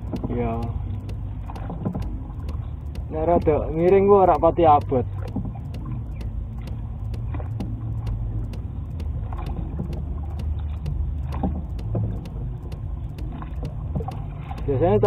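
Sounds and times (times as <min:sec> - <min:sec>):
faint regular clicks: 0:00.0 - 0:15.0
paddle splash: 0:00.0 - 0:15.0
wind and water rumble: 0:00.0 - 0:15.0.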